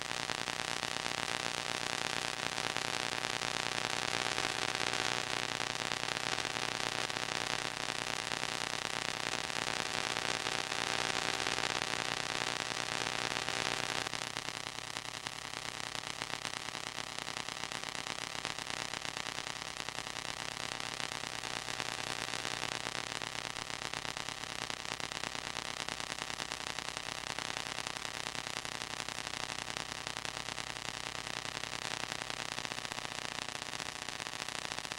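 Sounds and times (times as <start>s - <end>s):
static hiss: 0.0s - 34.9s.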